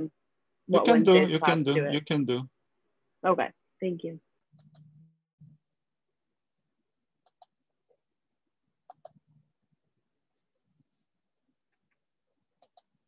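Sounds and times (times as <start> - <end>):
computer mouse clicks: 4.6 - 4.9, 7.2 - 7.6, 8.9 - 9.2, 12.6 - 13.0.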